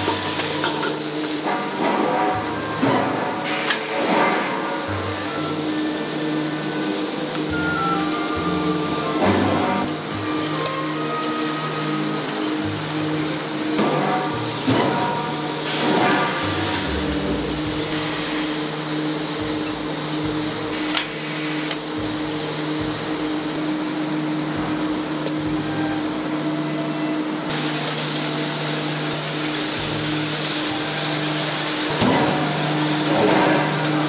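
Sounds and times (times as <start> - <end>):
electrical hum: 0.0 - 34.0
factory machinery running: 0.0 - 34.0.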